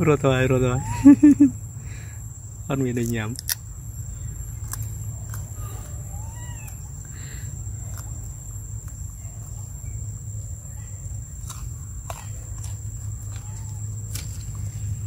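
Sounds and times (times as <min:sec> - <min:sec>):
steady low rumble: 0:00.0 - 0:15.0
macaque coo: 0:05.3 - 0:08.0.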